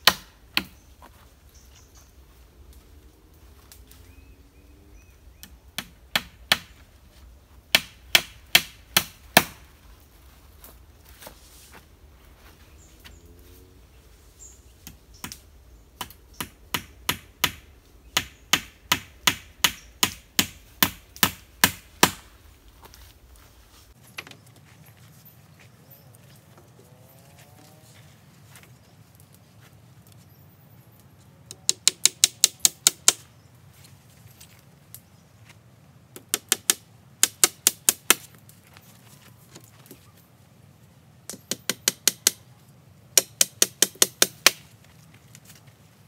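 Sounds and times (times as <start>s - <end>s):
tool striking wood: 31.5s - 33.2s, 41.3s - 42.4s, 43.2s - 44.6s.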